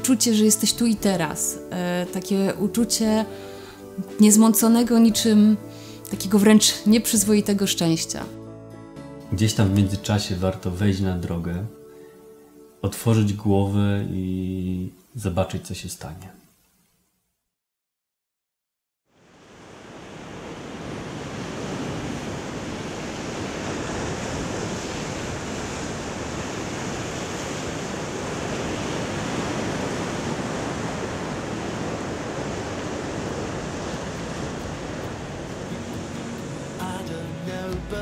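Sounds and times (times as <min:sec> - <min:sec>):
waves washing on rocky shore: 0:19.4 - 0:37.2.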